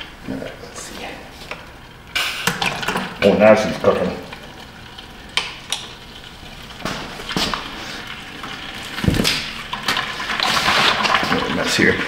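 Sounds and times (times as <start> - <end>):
oil draining into plastic bucket: 2.4 - 12.0.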